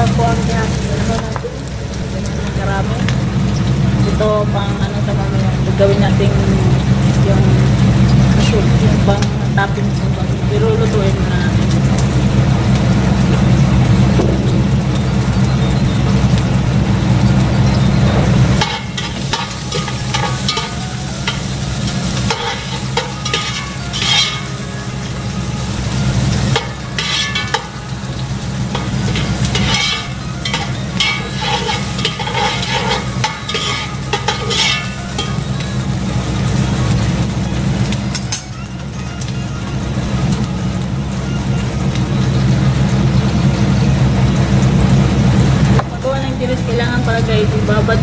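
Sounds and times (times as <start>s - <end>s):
loud low hum: 0.0s - 48.0s
sizzling hiss: 0.0s - 48.0s
metal skimmer scraping pots: 17.1s - 40.4s.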